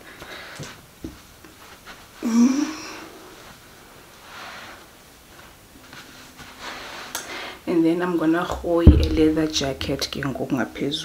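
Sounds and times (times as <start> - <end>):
breathy hiss: 2.2 - 5.0, 6.6 - 7.7
soft knock: 8.8 - 10.0.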